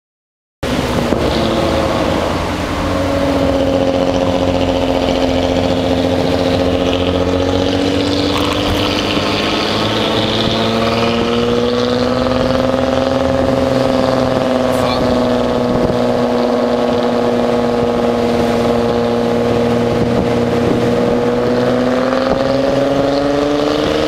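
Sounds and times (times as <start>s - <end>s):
car engine running: 0.6s - 24.0s.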